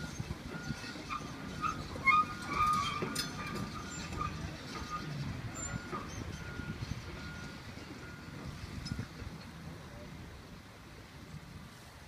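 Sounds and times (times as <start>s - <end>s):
excavator diesel engine rumbling: 0.0s - 12.0s
short high squeals: 0.1s - 6.2s.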